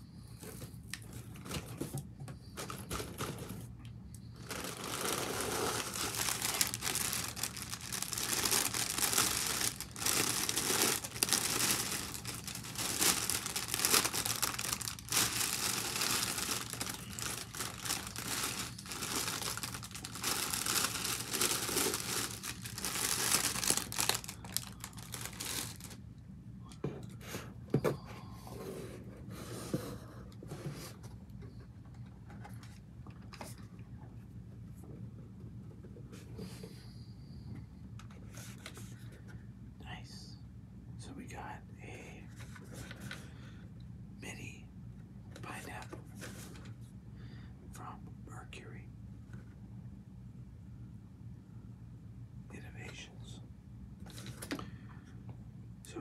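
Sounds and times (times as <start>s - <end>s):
plastic wrap crinkling: 4.4s - 26.0s.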